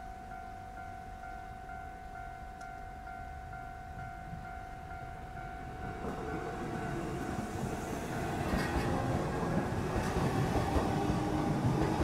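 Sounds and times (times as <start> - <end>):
crossing warning signal tone: 0.0 - 10.1
train wheels rumbling on rail: 5.3 - 12.0.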